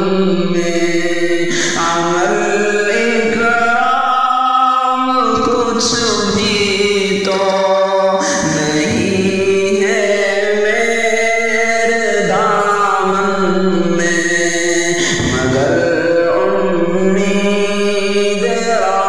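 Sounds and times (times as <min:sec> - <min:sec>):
man singing devotional song: 0:00.0 - 0:19.0.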